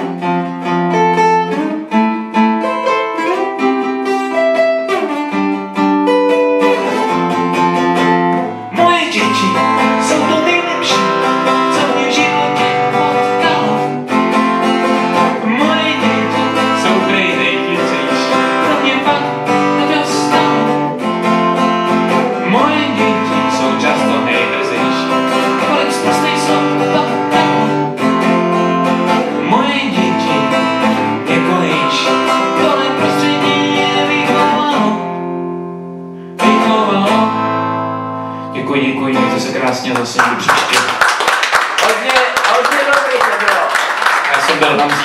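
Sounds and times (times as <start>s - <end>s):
acoustic guitar strumming: 0.0s - 40.6s
man singing: 8.5s - 14.1s, 15.0s - 21.0s, 22.1s - 28.0s, 28.9s - 35.2s, 36.4s - 37.6s, 38.5s - 40.6s.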